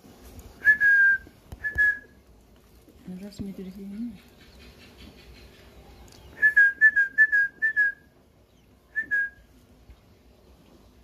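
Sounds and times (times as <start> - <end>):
quail chicks peeping: 3.2 - 6.5.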